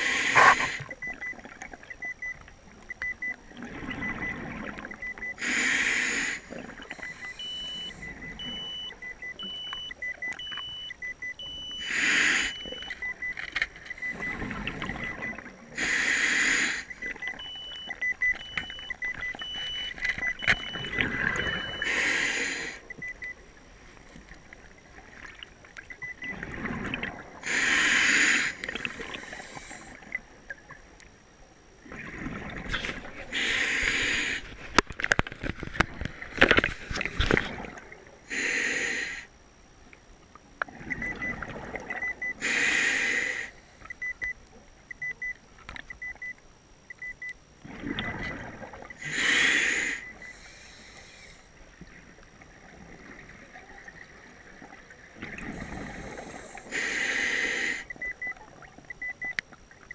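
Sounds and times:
regulator breathing bubbles: 0.0 - 1.0, 20.4 - 23.2, 47.7 - 51.5, 55.2 - 58.3
electronic beep: 6.8 - 15.5, 16.9 - 23.4, 25.9 - 26.4, 48.0 - 50.5, 57.6 - 59.9.

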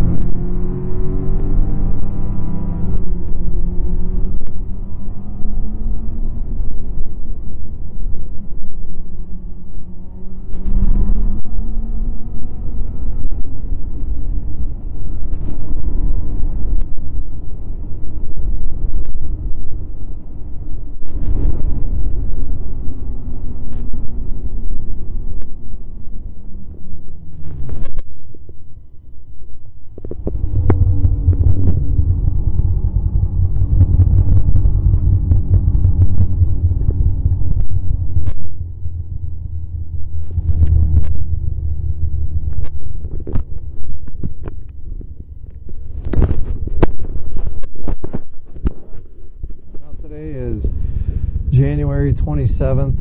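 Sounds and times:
snowmobile engine running: 30.2 - 42.6.

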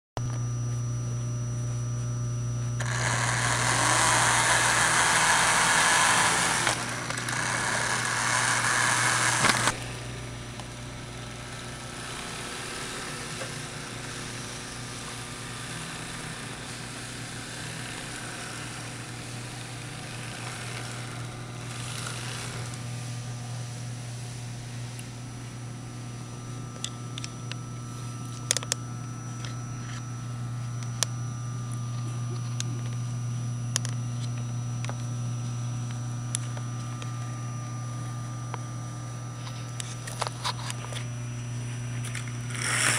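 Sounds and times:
low hum: 0.2 - 42.9
model train motor whir: 2.8 - 23.4, 41.8 - 42.9.

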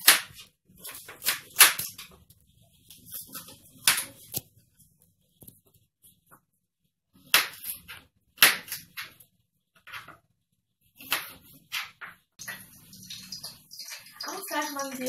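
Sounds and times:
knife chopping on cutting board: 7.2 - 9.1.

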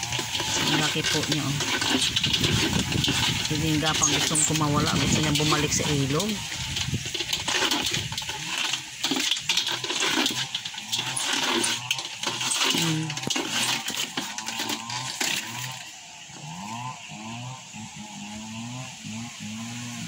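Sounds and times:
water splashing in metal basin: 0.0 - 15.9
turtle scraping against metal: 0.0 - 19.2.

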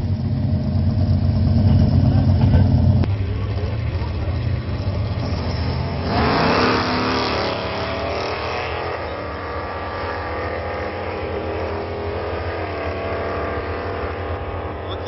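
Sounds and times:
drag cars launching at full throttle: 4.8 - 11.2.

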